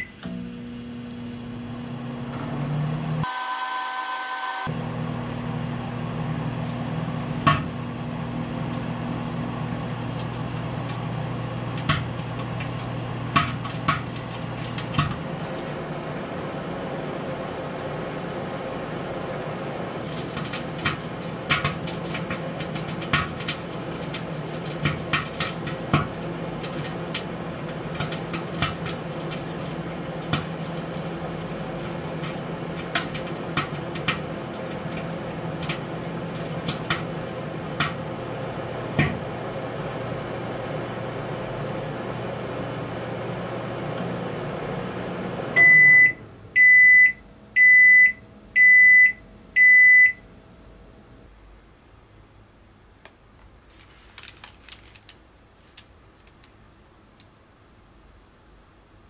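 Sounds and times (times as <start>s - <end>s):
microwave beeps: 0.0s - 0.4s, 3.2s - 4.7s, 45.6s - 50.3s
microwave oven humming: 0.0s - 52.4s
food popping in microwave: 7.4s - 15.8s, 20.0s - 38.0s, 38.9s - 39.3s.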